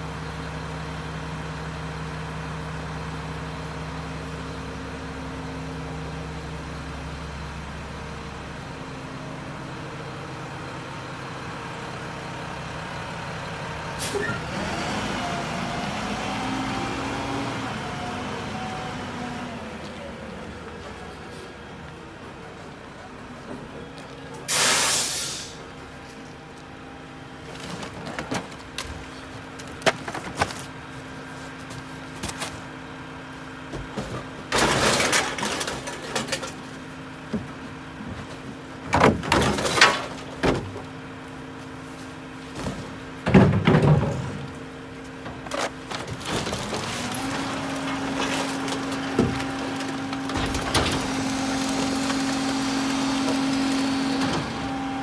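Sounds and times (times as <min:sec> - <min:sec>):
garbage truck engine idling: 0:00.0 - 0:55.0
short hiss: 0:24.5 - 0:25.6
containers and cardboard clattering: 0:27.5 - 0:30.8, 0:33.8 - 0:36.7, 0:37.4 - 0:40.9, 0:45.2 - 0:54.6.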